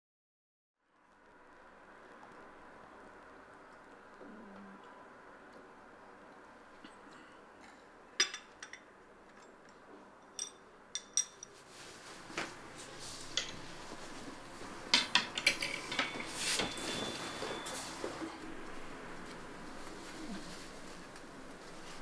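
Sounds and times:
cup and saucer clinking: 8.2s - 8.9s, 10.3s - 11.6s, 15.0s - 17.8s
shirt rustling: 11.5s - 14.9s, 15.8s - 18.4s.

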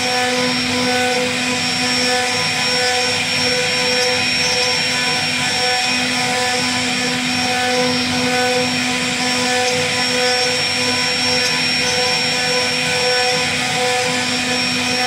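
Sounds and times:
router bit cutting wood: 0.0s - 15.0s
router spindle whining: 0.0s - 15.0s.

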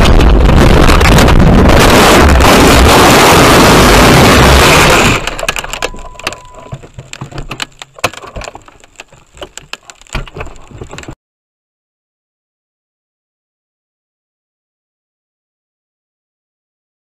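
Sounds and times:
loud distorted rushing noise: 0.0s - 5.5s
sharp cracks and clicks: 4.4s - 11.2s.

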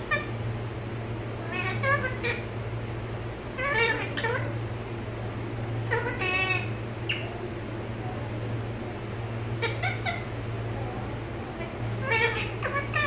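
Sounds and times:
parakeet calling: 0.0s - 0.4s, 1.3s - 2.7s, 3.4s - 4.9s, 5.7s - 7.5s, 9.2s - 10.7s, 11.5s - 13.0s
steady low hum: 0.0s - 13.0s.

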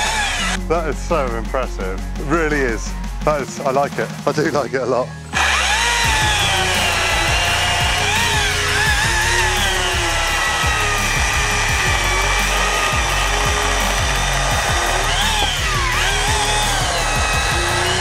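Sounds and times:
chainsaw cutting through log: 0.0s - 0.6s, 5.3s - 18.0s.

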